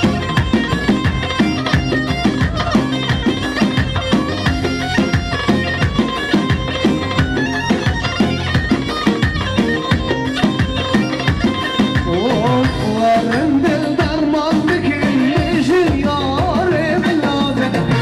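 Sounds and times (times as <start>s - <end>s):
reedy wind instrument melody: 0.0s - 13.2s
steady drumbeat: 0.0s - 18.0s.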